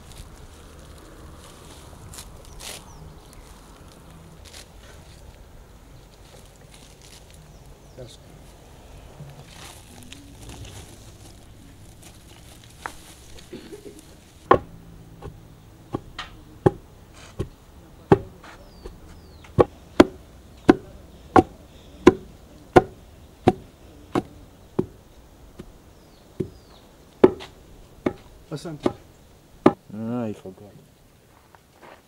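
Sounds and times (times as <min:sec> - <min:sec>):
blade chopping on wood: 0:14.5 - 0:25.0, 0:27.2 - 0:29.0.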